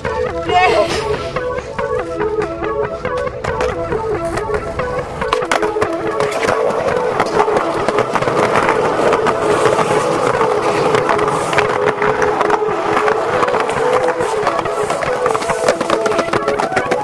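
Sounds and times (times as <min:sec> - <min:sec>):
skateboard trucks grinding on concrete: 0:00.0 - 0:17.0
skateboard wheels rolling on concrete: 0:00.0 - 0:17.0
skateboard clattering: 0:02.0 - 0:17.0.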